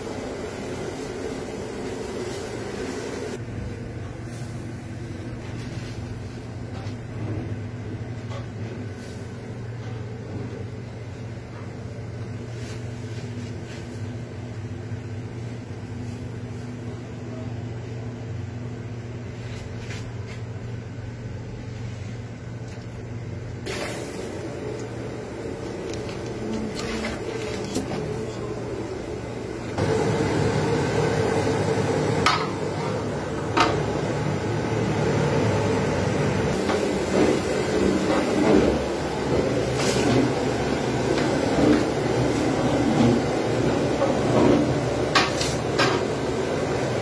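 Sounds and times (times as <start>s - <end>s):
low mechanical hum: 0.0s - 47.0s.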